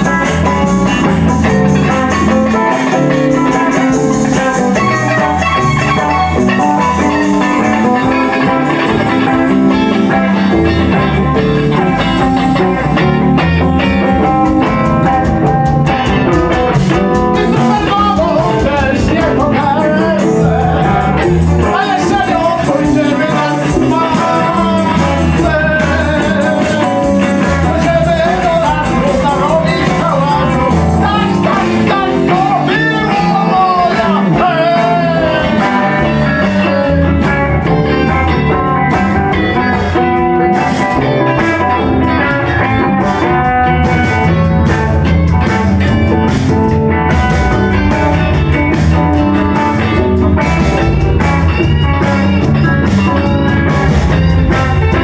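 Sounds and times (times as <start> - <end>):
drums playing: 0.0 - 55.0
electric guitars playing: 0.0 - 55.0
man singing into a microphone: 17.4 - 37.3.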